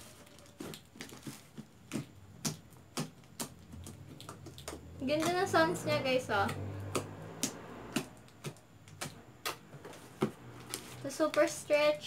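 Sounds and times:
slime clicking and popping: 1.8s - 5.5s, 6.4s - 9.7s.

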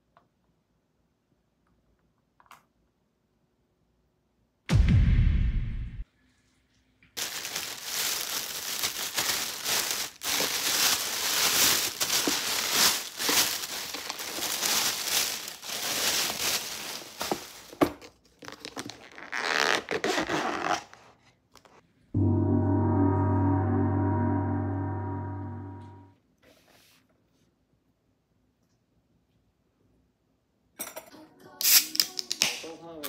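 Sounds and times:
plastic bag crinkling: 7.2s - 20.0s.

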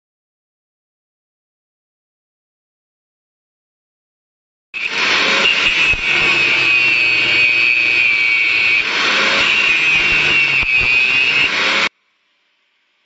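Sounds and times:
angle grinder cutting metal pipe: 4.8s - 11.9s.

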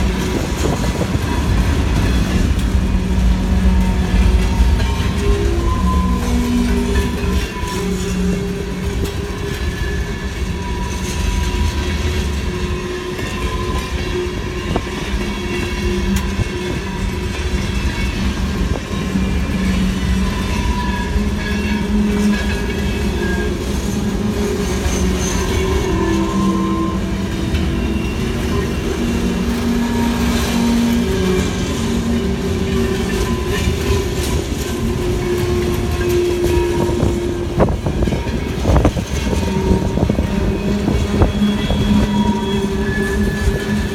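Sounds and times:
train wheels rumbling on rails: 0.0s - 43.9s.

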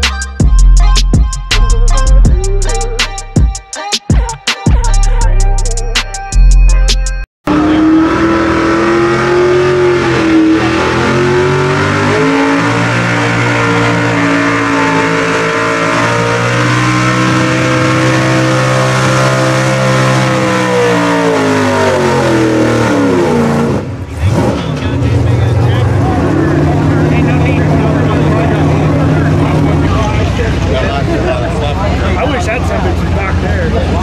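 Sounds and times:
truck engine at high revs: 7.4s - 34.0s.

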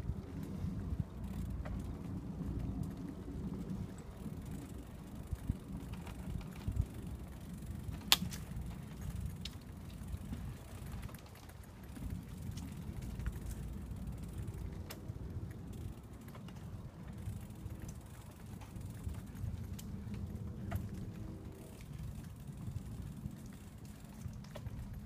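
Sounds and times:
bicycle tyres rumbling on planks: 0.0s - 25.0s.

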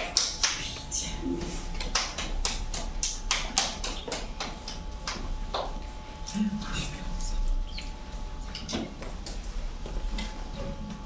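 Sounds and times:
sharp taps and clicks: 1.8s - 5.7s.

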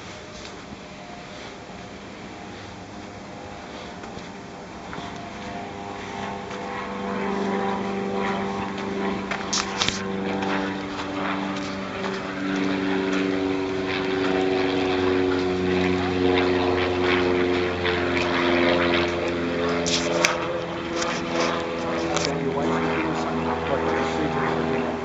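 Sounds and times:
engine drone: 0.0s - 25.0s.

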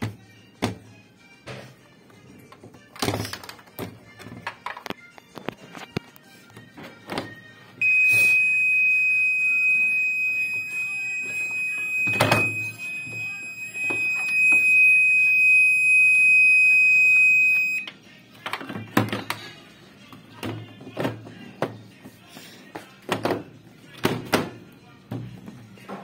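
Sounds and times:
washing machine buzzer beep: 7.8s - 17.9s.

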